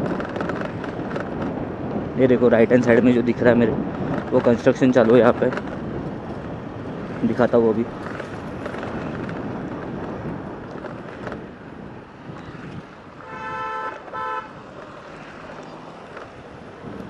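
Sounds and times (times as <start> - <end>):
steady traffic: 0.0 - 17.0
wind noise on microphone: 0.0 - 17.0
vehicle horn honking: 13.2 - 14.6.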